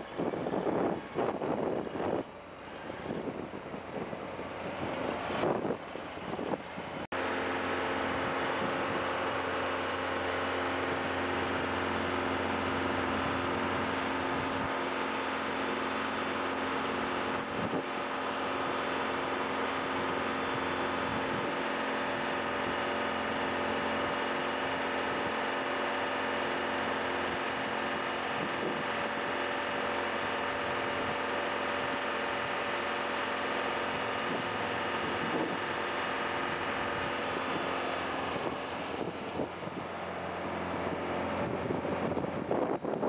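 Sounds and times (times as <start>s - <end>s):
wind buffeting microphone: 0.0s - 7.0s, 15.8s - 25.4s, 27.0s - 29.6s, 33.7s - 43.0s
diesel engine droning: 0.0s - 43.0s.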